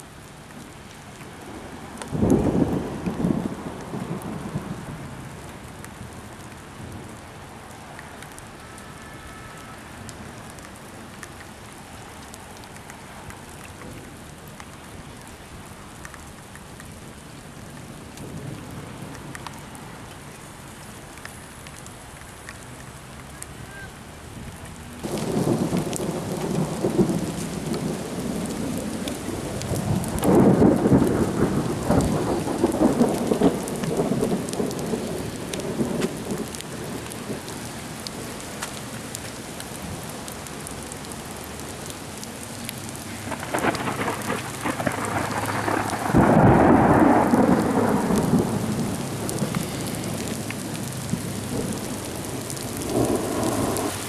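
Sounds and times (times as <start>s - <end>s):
heavy rain: 0.0s - 54.0s
hail falling: 25.0s - 54.0s
rolls of thunder: 29.6s - 36.6s, 43.3s - 50.3s.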